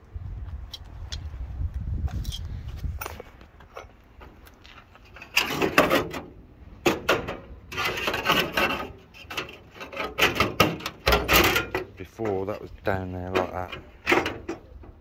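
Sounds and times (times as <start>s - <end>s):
sheet metal scraping and knocking: 5.0s - 12.6s, 13.2s - 15.0s.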